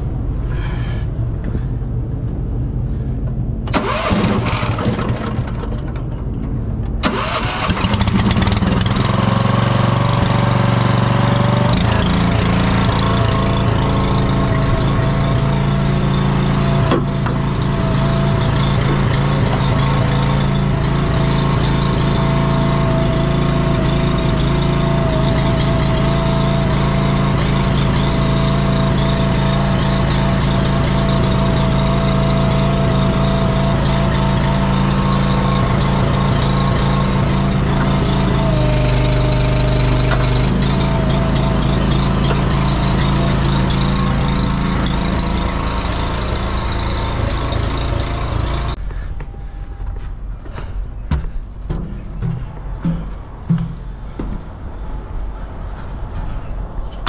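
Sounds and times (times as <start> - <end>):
small engine cranking and running: 3.7 - 6.1, 7.0 - 48.8.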